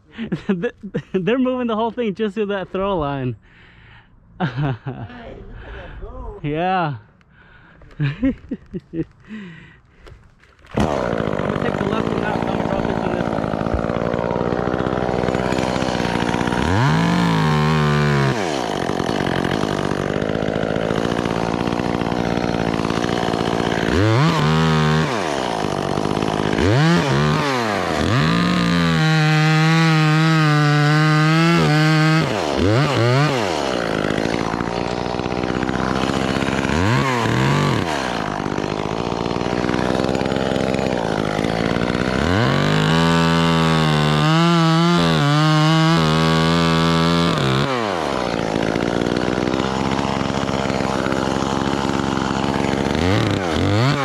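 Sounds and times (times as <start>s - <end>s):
chainsaw idling and revving: 0.0s - 3.8s, 6.9s - 54.0s.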